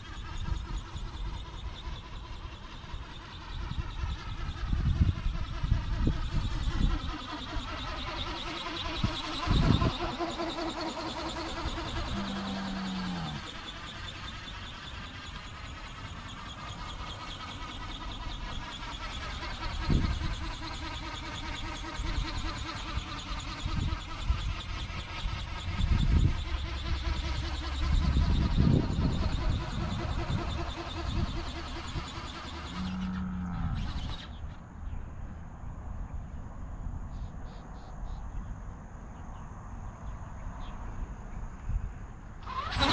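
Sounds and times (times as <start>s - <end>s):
electric motor whining: 0.0s - 34.4s, 42.4s - 42.9s
brief low hum: 32.7s - 35.4s
crickets chirping: 36.5s - 42.2s.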